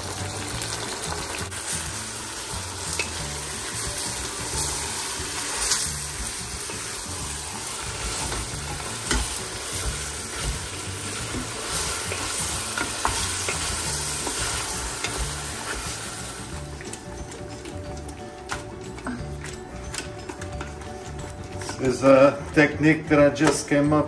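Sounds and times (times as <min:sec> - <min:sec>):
meat sizzling in a pot: 0:00.0 - 0:22.6.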